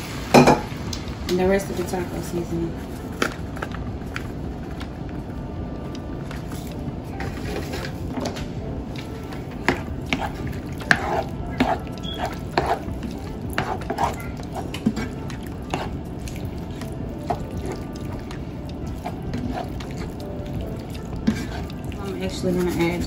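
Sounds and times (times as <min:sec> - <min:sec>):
meat squishing: 0:08.8 - 0:23.0
spoon scraping pan: 0:09.6 - 0:23.0.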